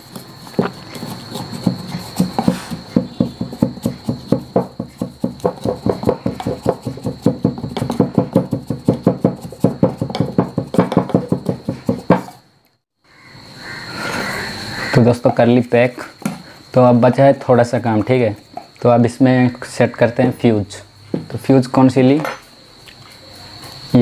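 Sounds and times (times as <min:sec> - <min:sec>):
knife knocking inside a pipe: 0:01.4 - 0:12.4.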